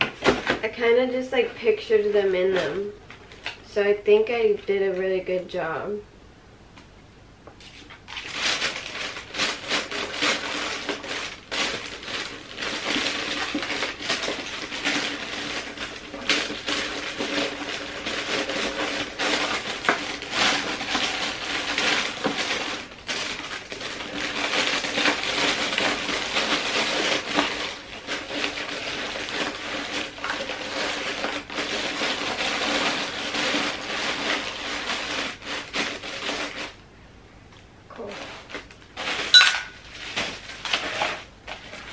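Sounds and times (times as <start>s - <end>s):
paper rustling and crinkling: 7.6s - 36.8s, 38.0s - 41.9s.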